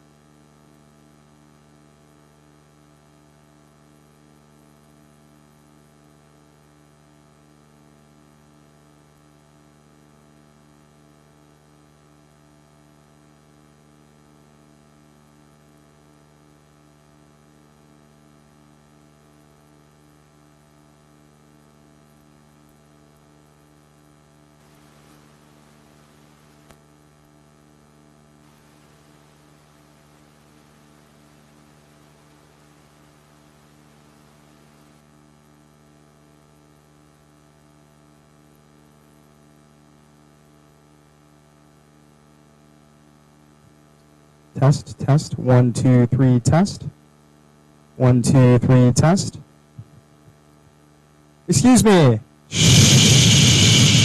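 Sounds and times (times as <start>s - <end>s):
faint electrical mains hum: 0.0s - 54.0s
faint hiss: 24.6s - 26.7s, 28.4s - 35.1s, 51.5s - 54.0s.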